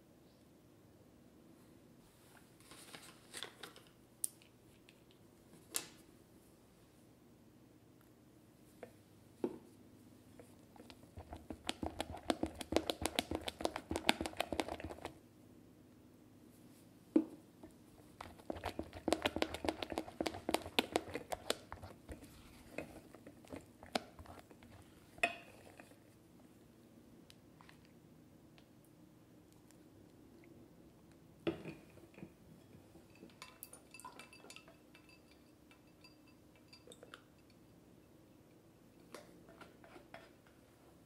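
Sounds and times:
spatula squishing whipped cream: 0:10.6 - 0:15.2, 0:18.1 - 0:26.0.

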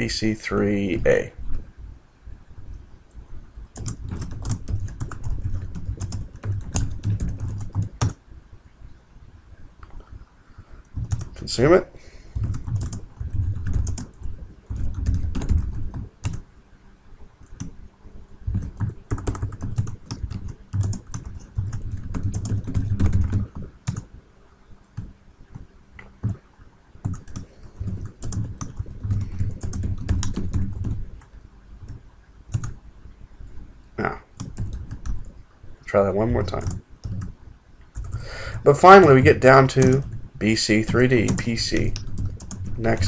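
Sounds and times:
computer keyboard typing: 0:03.6 - 0:08.2, 0:10.8 - 0:11.5, 0:12.3 - 0:16.4, 0:17.4 - 0:17.8, 0:18.4 - 0:24.1, 0:25.0 - 0:26.4, 0:27.0 - 0:31.2, 0:31.8 - 0:32.8, 0:34.4 - 0:35.3, 0:36.5 - 0:37.3, 0:37.9 - 0:38.6, 0:39.4 - 0:43.0.

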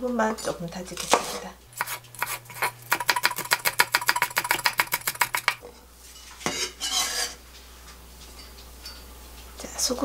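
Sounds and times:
knife blade scraping board: 0:01.1 - 0:05.6, 0:06.4 - 0:07.4
knife chopping on wooden board: 0:01.8 - 0:05.6.

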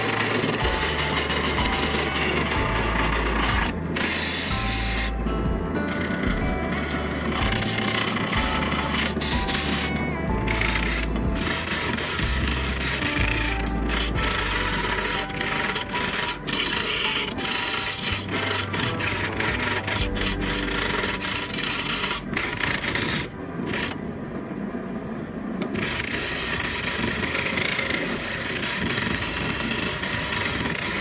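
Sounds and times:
lathe gouge scraping wood: 0:00.0 - 0:24.0.

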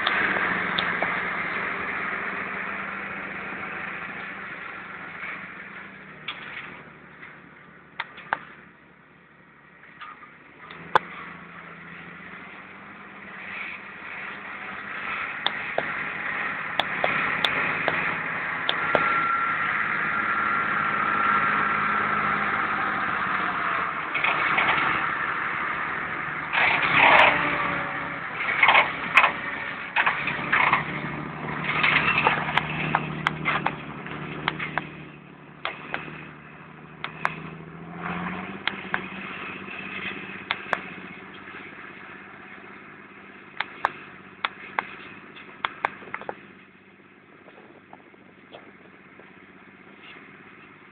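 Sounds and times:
tractor diesel engine running: 0:00.0 - 0:50.9
sharp clatters: 0:26.5 - 0:27.8, 0:28.4 - 0:41.8.

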